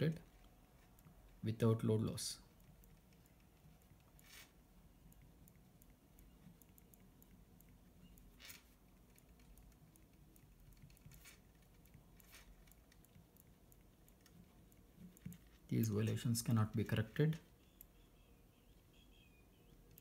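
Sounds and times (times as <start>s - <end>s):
pen scratching on paper: 4.2s - 4.6s, 10.9s - 12.6s.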